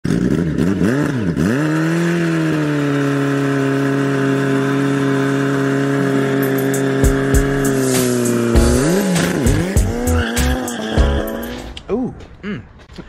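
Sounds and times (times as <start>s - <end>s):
motorcycle engine revving: 0.0s - 11.5s
tyre spinning in burnout: 1.6s - 11.3s.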